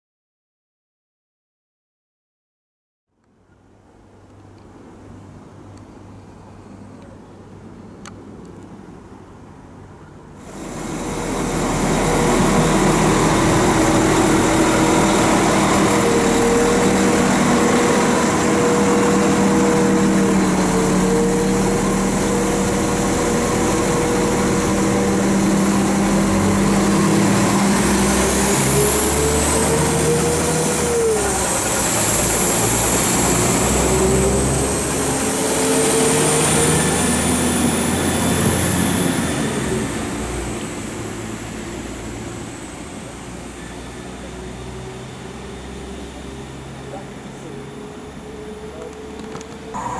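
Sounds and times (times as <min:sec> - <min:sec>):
high whine: 0:10.4 - 0:44.3, 0:49.2 - 0:49.9
diesel train engine pulling away: 0:10.4 - 0:49.9.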